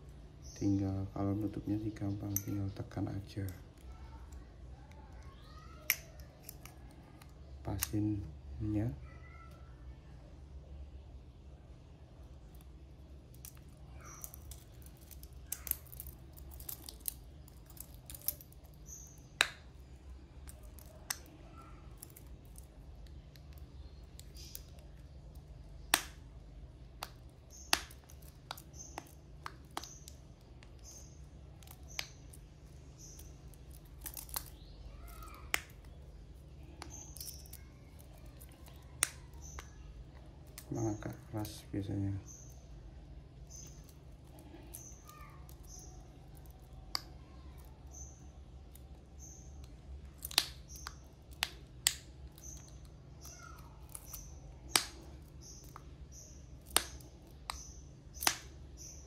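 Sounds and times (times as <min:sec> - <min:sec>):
bracelet links clinking: 0:13.3 - 0:19.2, 0:33.0 - 0:39.8.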